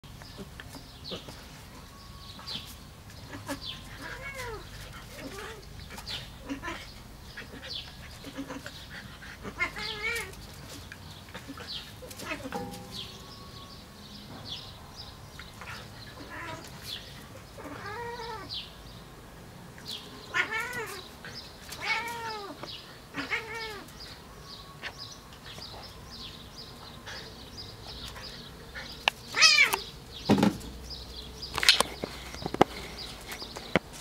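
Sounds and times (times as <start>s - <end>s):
cat meowing: 3.4s - 4.6s, 16.2s - 16.6s, 17.6s - 18.5s, 20.3s - 21.0s, 21.8s - 23.9s, 29.4s - 29.8s.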